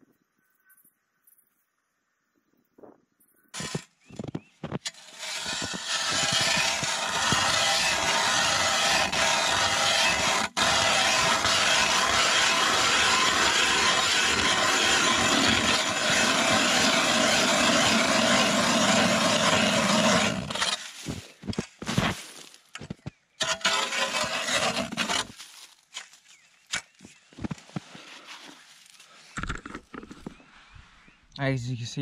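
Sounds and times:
auger scraping and knocking: 3.6 - 22.2, 22.8 - 28.6, 29.3 - 30.4
ice auger grinding through ice: 3.6 - 22.2, 23.4 - 25.7.

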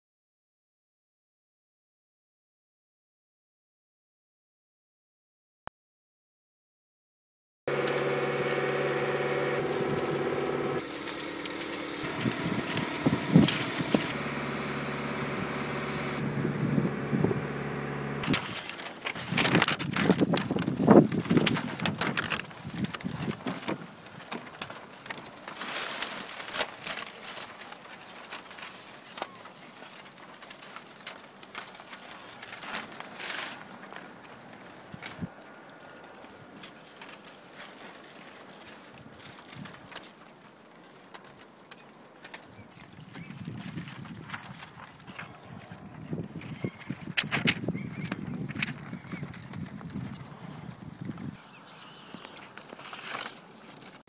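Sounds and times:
paper sheets rustling and crackling: 7.7 - 15.9, 18.2 - 51.4, 52.2 - 54.0
engine hum: 7.7 - 23.8.

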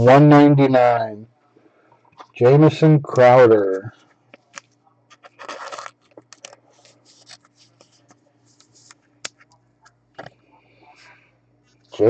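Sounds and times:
plastic sleeve rubbing and scraping: 5.1 - 8.0.

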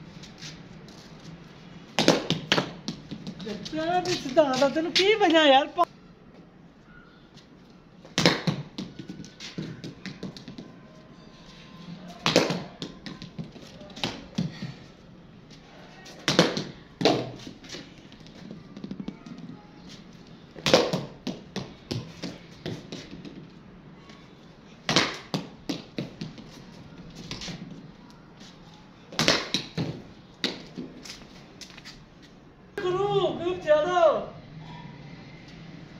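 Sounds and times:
cricket bat hitting ball: 2.0 - 3.4, 8.2 - 10.4, 12.2 - 13.2, 20.6 - 21.7, 24.9 - 26.1, 29.2 - 30.6.

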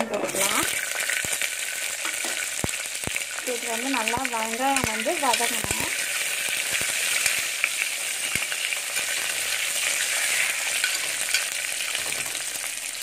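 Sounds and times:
food sizzling in hot oil: 0.0 - 13.0
metal spoon stirring: 4.7 - 7.5, 8.2 - 12.4.

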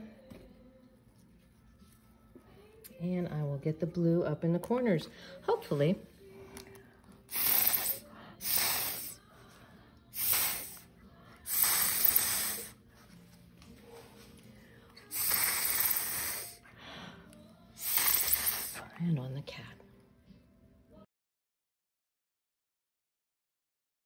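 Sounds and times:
hissing puffs of atomizer: 7.3 - 9.3, 10.1 - 12.9, 15.0 - 16.7, 17.8 - 18.9.

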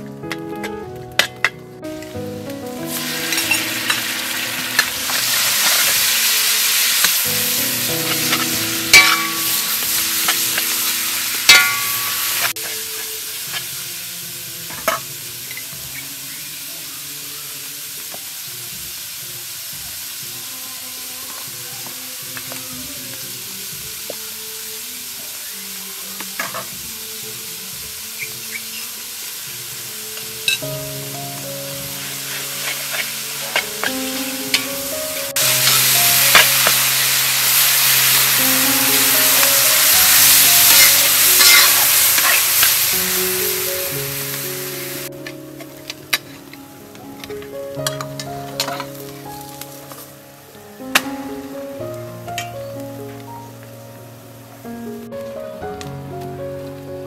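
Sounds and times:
meat frying: 0.0 - 54.4
loud sizzling in hot oil: 1.2 - 53.2
spatula clinking against pan: 11.5 - 12.1.

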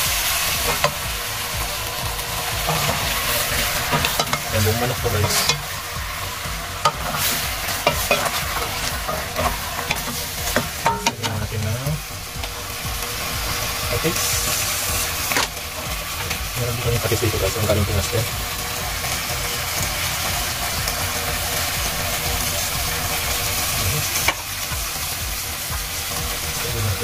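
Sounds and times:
chicken sizzling in a pot: 0.0 - 27.0.

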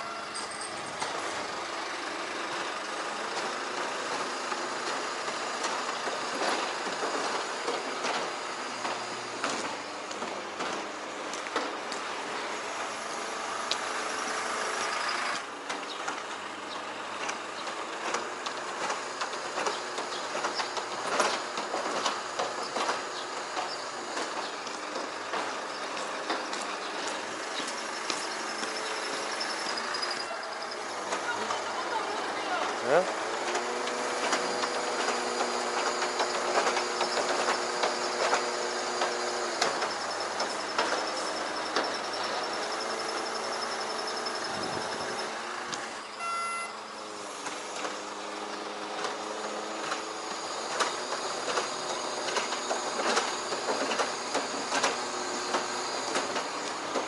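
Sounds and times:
ladder lift mechanical hum: 0.0 - 57.0
truck engine running: 0.0 - 57.0
irregular clicking and rattling: 17.2 - 30.3, 33.4 - 43.5.

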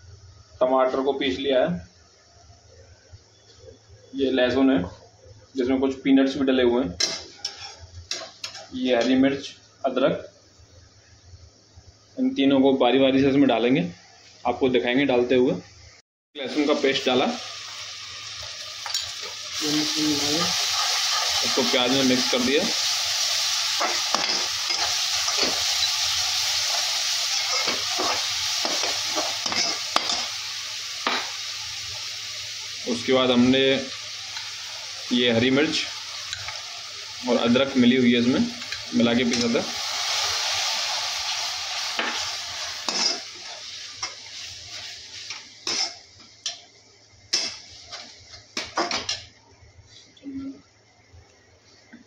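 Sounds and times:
steel spatula scraping pan: 7.0 - 7.8, 42.8 - 44.1
metal spatula scraping a pan: 7.0 - 8.7, 27.2 - 30.3, 42.0 - 46.0
paste sizzling in hot oil: 16.4 - 49.2
spatula clinking: 18.8 - 19.3, 27.3 - 30.3.

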